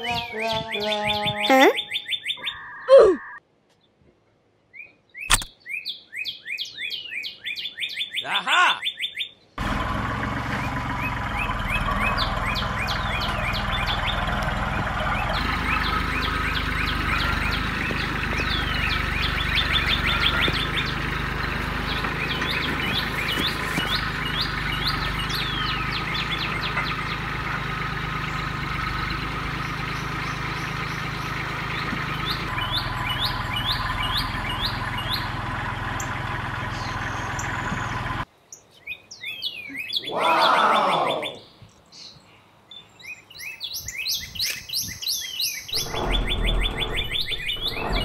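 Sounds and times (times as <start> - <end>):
small birds chirping: 0.0 - 4.0, 4.6 - 9.6, 10.5 - 48.0
sound falling steeply in pitch: 45.8 - 48.0
steady low hum: 45.8 - 48.0.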